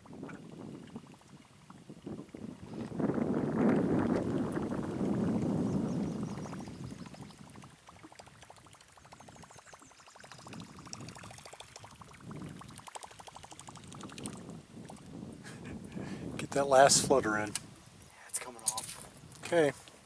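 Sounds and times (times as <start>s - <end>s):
lure gurgling across water: 0.0s - 15.4s
fishing reel ticking: 5.7s - 15.0s.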